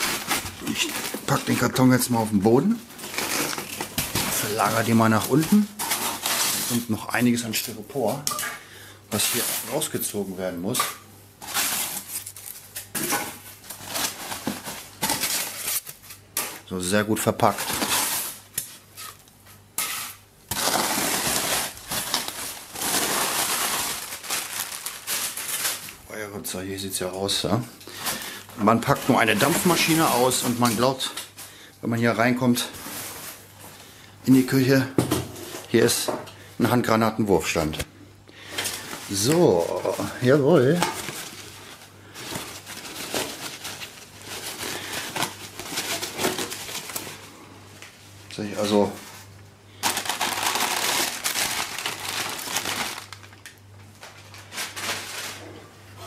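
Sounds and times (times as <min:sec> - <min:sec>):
packing material rustling: 0:00.0 - 0:08.1, 0:11.4 - 0:12.8, 0:13.4 - 0:16.1, 0:20.5 - 0:26.1, 0:27.9 - 0:31.2, 0:38.6 - 0:47.3, 0:49.8 - 0:55.4.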